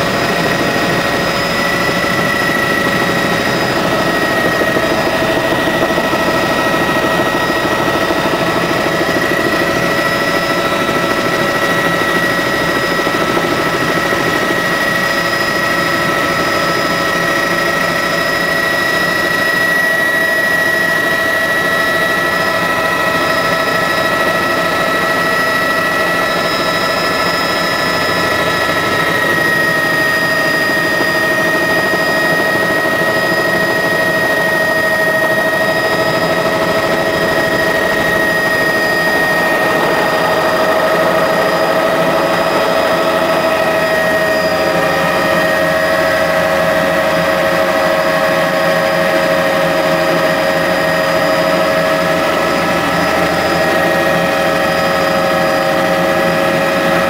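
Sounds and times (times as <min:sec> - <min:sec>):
helicopter rotor noise: 0:00.0 - 0:57.0
helicopter turbine whine: 0:00.0 - 0:57.0.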